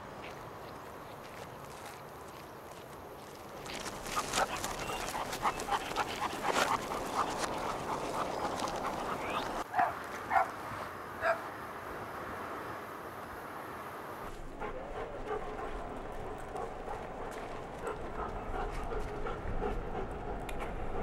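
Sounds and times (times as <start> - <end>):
dog barking: 9.7 - 10.5, 11.2 - 11.4.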